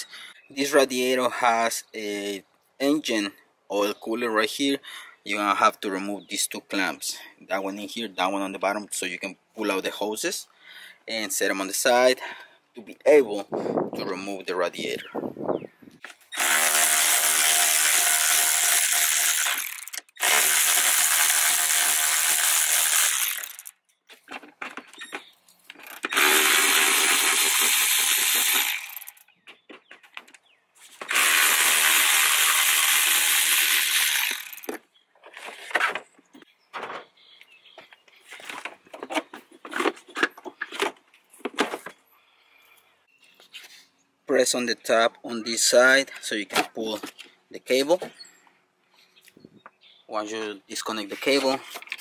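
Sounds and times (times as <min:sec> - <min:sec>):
power tool whining: 0:16.3 - 0:23.8, 0:25.7 - 0:29.3, 0:31.0 - 0:34.8
clicks and knocks of parts handled: 0:23.6 - 0:26.2, 0:51.6 - 0:52.0.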